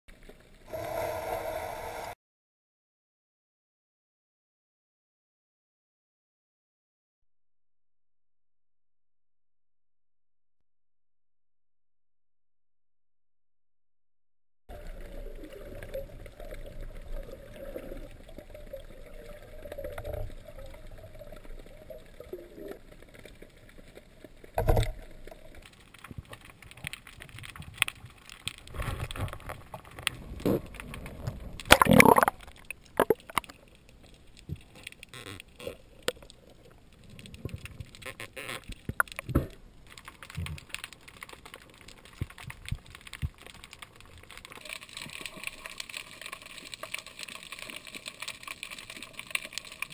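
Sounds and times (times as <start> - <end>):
muffled underwater water movement: 14.7 - 49.9.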